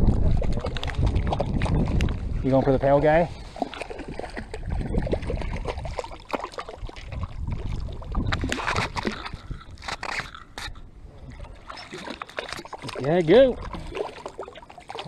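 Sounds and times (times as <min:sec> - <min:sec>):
water sloshing and splashing: 0:00.0 - 0:15.0.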